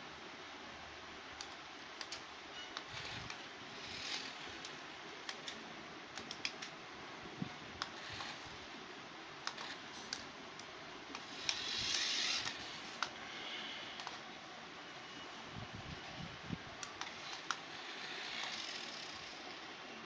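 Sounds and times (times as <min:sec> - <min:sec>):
toy car clicking on tile floor: 0:02.8 - 0:05.6, 0:07.8 - 0:08.5, 0:09.5 - 0:10.2, 0:11.2 - 0:13.1, 0:17.0 - 0:19.5
toy car whirring hiss: 0:02.8 - 0:05.6, 0:07.8 - 0:08.7, 0:09.4 - 0:10.2, 0:11.1 - 0:14.2, 0:16.9 - 0:19.7.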